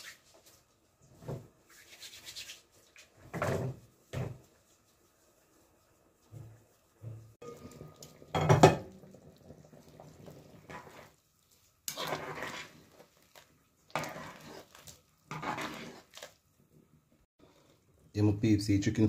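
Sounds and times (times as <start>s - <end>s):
metal pot clanking: 7.4s - 9.2s
spoon scraping in pot: 9.8s - 11.2s, 11.8s - 16.4s.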